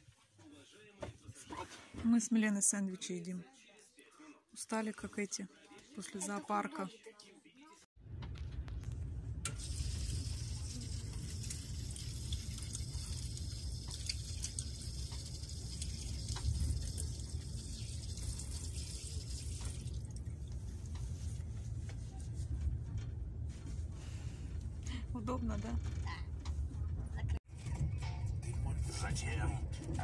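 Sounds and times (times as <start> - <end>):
hands washing under water: 9.6 - 22.4.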